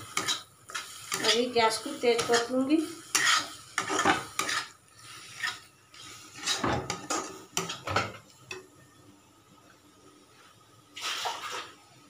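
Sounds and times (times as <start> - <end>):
spatula scraping a metal pan: 0.1 - 7.9.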